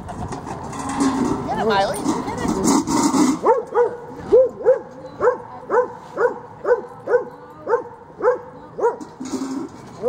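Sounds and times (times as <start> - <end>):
dog barking: 3.4 - 9.0.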